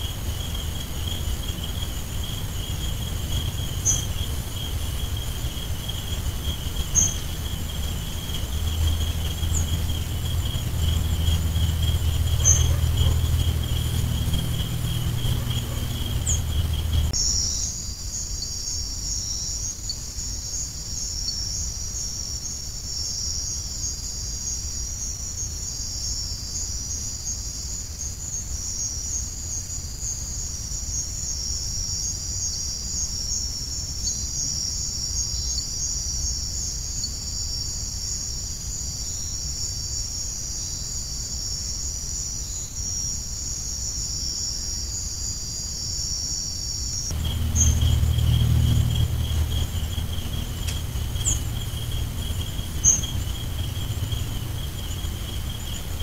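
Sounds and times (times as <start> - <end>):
insect trills: 0.0 - 56.0
low rumble: 2.2 - 17.2, 47.1 - 56.0.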